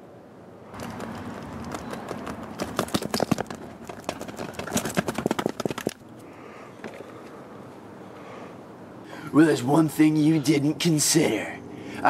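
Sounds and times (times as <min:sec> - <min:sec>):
clattering knocks and clicks: 0:00.7 - 0:06.0.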